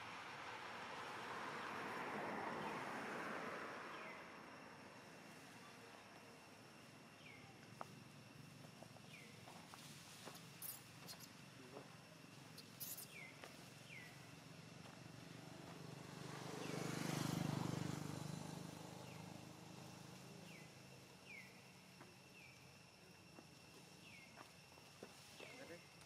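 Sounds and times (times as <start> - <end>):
high insect drone: 0.0 - 26.0
vehicle passing by: 0.1 - 5.6, 13.9 - 20.8.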